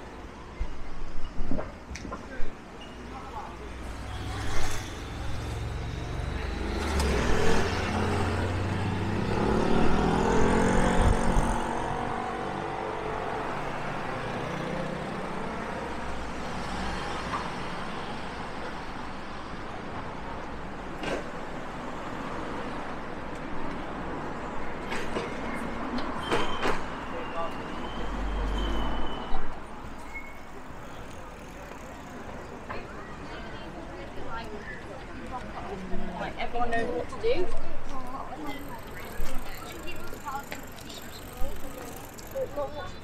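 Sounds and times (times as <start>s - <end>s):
traffic hum: 0.0s - 43.0s
vehicle accelerating past: 4.3s - 12.8s.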